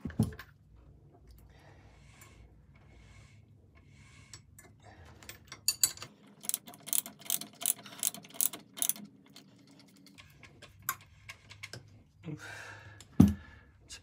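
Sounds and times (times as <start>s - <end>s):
spanner clicking on metal bolts: 5.5s - 9.4s.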